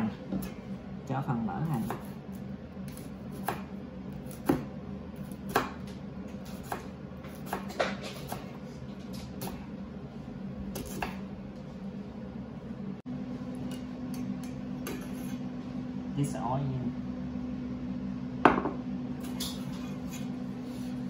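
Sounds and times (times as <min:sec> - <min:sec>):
steady low hum: 0:00.0 - 0:21.0
knife knocking on cutting board: 0:18.5 - 0:18.8.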